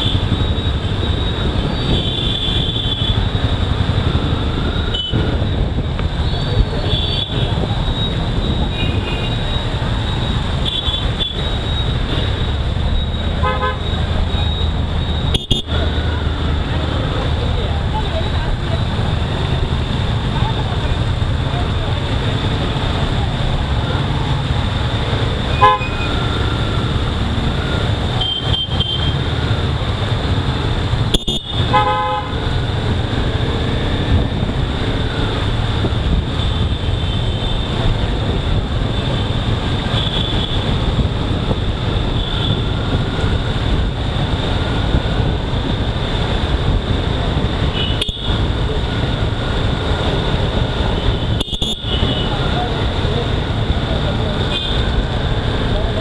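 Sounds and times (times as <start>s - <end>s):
motorcycle engine and road rumble: 0.0s - 56.0s
vehicle horns honking: 13.4s - 14.0s, 15.3s - 15.8s, 25.5s - 26.3s, 28.1s - 29.2s, 31.1s - 32.5s, 47.7s - 48.4s, 51.0s - 52.4s, 54.5s - 55.0s.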